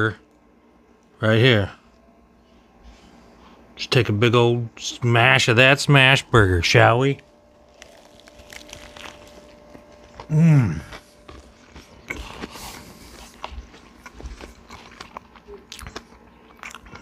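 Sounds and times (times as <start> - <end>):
man chewing: 7.6 - 17.0
man humming mmm: 10.2 - 11.0.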